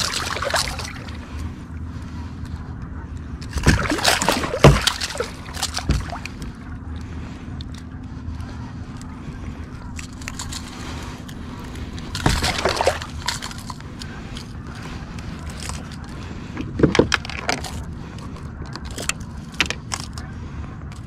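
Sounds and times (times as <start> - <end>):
fish thrashing and splashing: 0.0 - 1.5, 3.4 - 6.8, 9.9 - 17.9.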